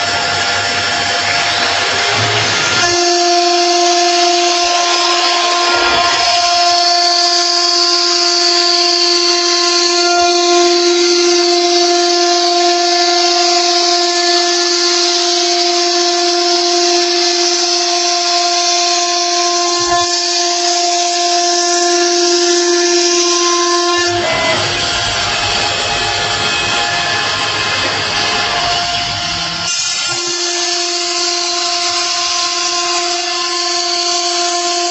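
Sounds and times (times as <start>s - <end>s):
router spindle whine: 0.0s - 34.9s
bit carving wood: 1.4s - 25.3s.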